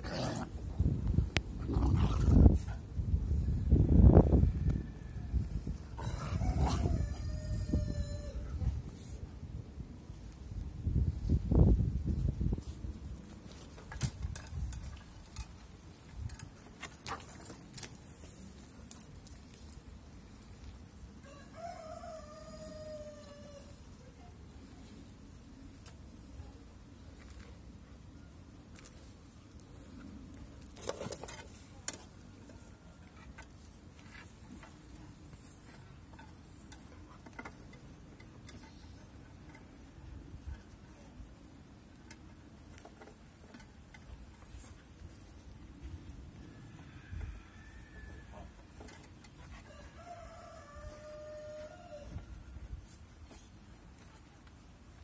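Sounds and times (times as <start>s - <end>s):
light clicks and clatters: 13.4s - 20.8s.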